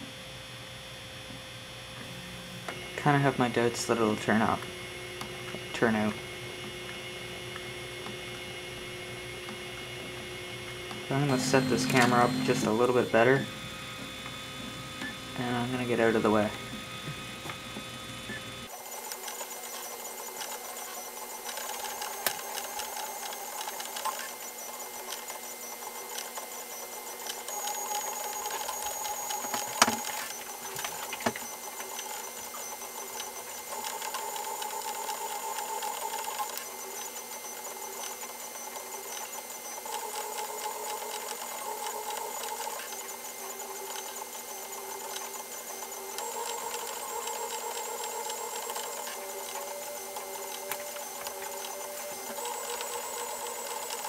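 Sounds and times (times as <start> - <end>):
fan hum: 0.0 - 18.7
stepper motors whining: 2.0 - 54.0.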